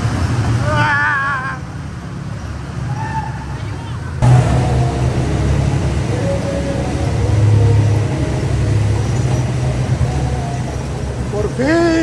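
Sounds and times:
utv engine running: 3.6 - 12.0.

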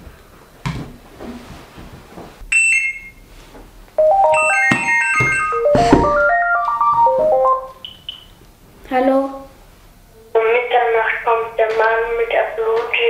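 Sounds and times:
electronic ringtone melody: 4.0 - 7.9
two-note electronic beep: 4.0 - 8.2.

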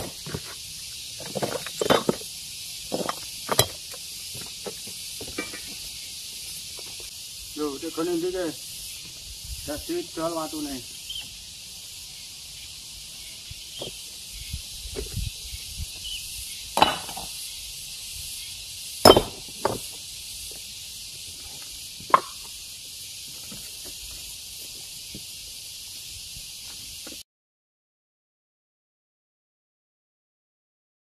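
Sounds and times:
steady high hiss: 0.0 - 27.2
rock knocking on rock: 16.8 - 17.3, 19.0 - 19.8.

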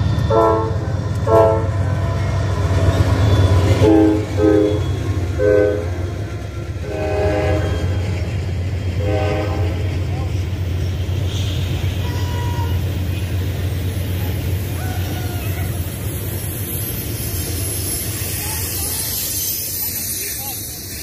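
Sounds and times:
train horn blasts: 0.3 - 1.9, 3.6 - 6.1, 6.8 - 8.2, 8.9 - 9.9.

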